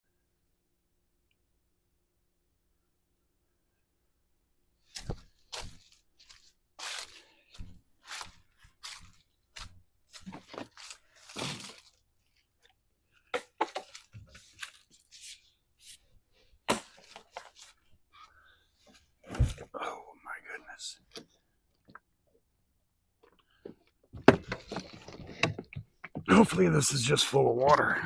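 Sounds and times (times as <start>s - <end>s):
dry leaves crunching and rustling: 5.6s - 7.3s, 10.4s - 12.0s.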